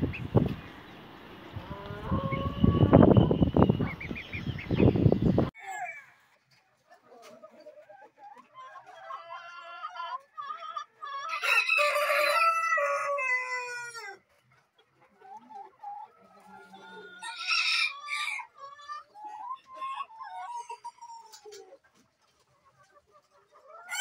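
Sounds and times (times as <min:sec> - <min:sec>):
hens clucking softly: 0:00.0 - 0:24.0
rooster crowing: 0:11.3 - 0:14.2, 0:17.2 - 0:18.5.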